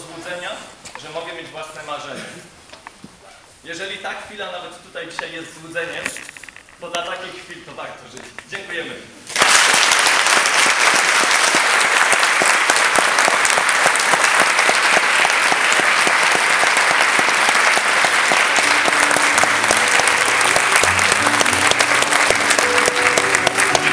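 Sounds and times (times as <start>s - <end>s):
audience applauding: 9.3s - 23.9s
music with pitched notes: 18.6s - 23.9s.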